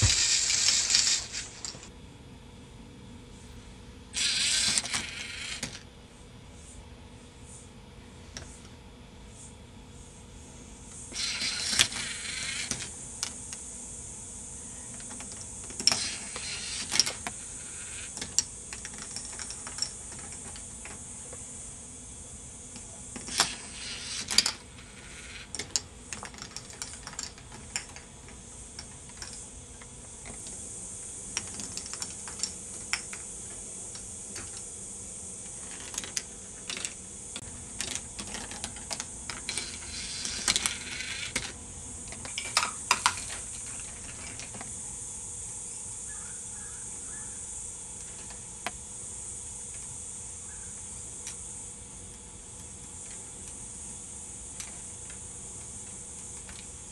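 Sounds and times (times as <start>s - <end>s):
plastic parts clicking and clattering: 0.0s - 1.9s, 4.2s - 5.8s, 14.9s - 21.0s, 22.8s - 30.6s, 31.3s - 34.6s, 35.5s - 44.7s, 55.8s - 56.7s
steady high hiss: 0.0s - 56.9s.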